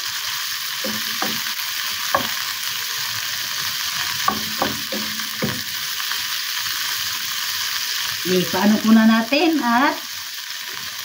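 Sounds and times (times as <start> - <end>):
vegetables sizzling in a frying pan: 0.0 - 11.0
wooden spatula knocking on pan: 0.8 - 2.4, 4.2 - 5.8.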